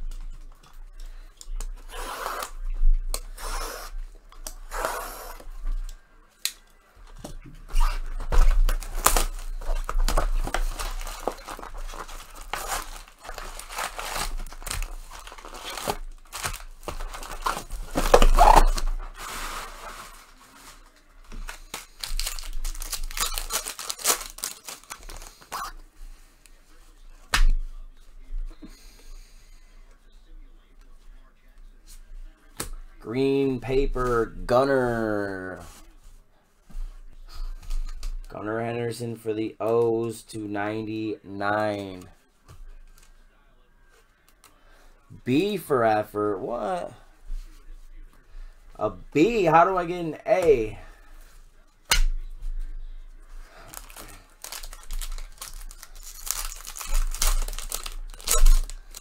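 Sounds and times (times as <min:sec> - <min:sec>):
wrappers tearing and crinkling: 0:07.7 - 0:25.8, 0:53.5 - 0:59.0.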